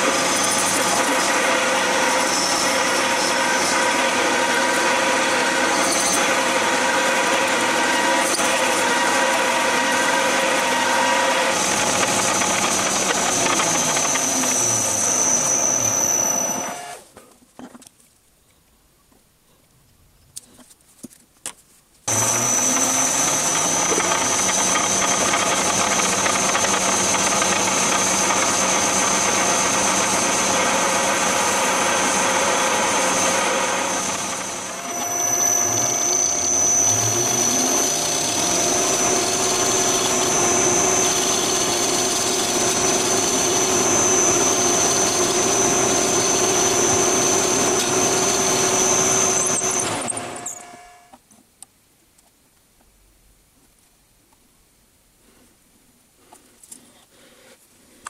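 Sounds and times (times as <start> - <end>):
metal lathe whining: 0.0 - 17.0, 22.1 - 51.2.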